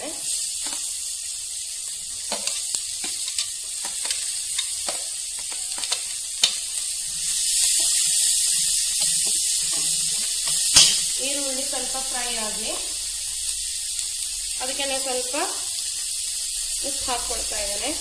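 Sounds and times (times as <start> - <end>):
onions sizzling in hot oil: 0.0 - 18.0
steel ladle scraping pan: 7.2 - 11.2.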